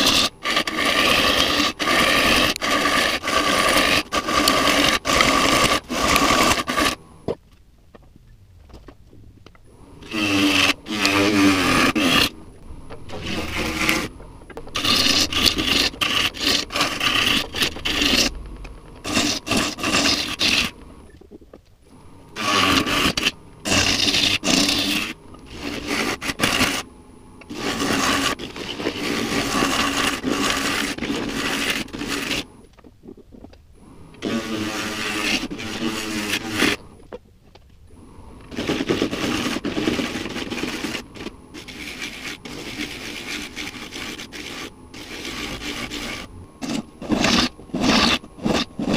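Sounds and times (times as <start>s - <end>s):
gouge scraping spinning wood: 0.0s - 7.4s, 9.7s - 21.1s, 22.3s - 32.6s, 33.8s - 37.0s, 38.4s - 48.9s.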